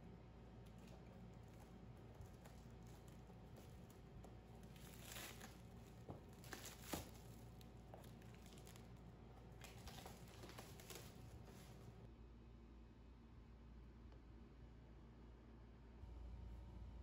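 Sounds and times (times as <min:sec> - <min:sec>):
plastic wrap crinkling: 0:00.6 - 0:12.0.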